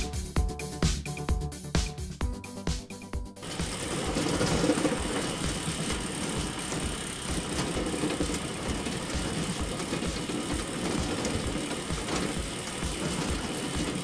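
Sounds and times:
small electric motor whirring: 3.4s - 14.0s.

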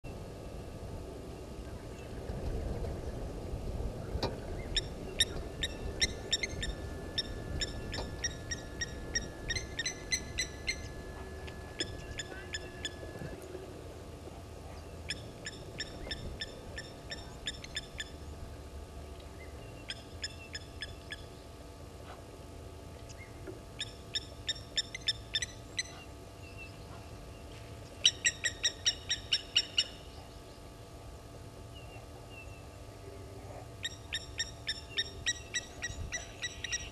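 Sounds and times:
lapwings calling metallic tink notes: 4.8s - 13.2s.

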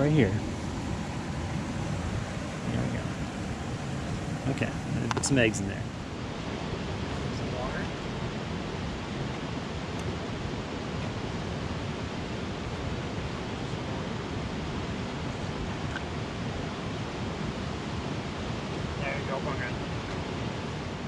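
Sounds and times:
creek rushing over rocks: 0.0s - 21.0s.

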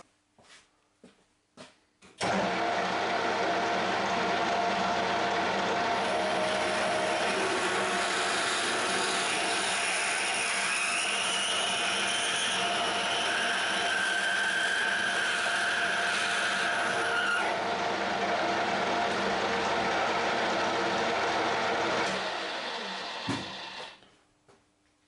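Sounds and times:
metal lathe humming: 2.2s - 24.0s
drill cutting squeal: 6.4s - 17.6s, 22.0s - 24.0s.

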